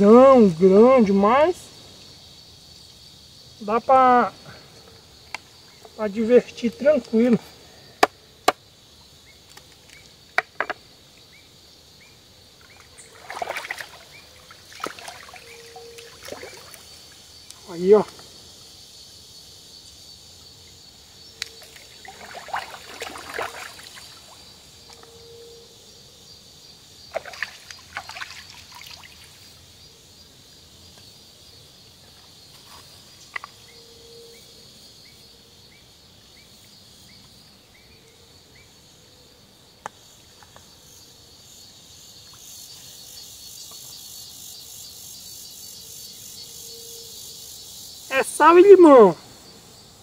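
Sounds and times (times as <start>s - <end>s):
insects droning: 0.0s - 50.0s.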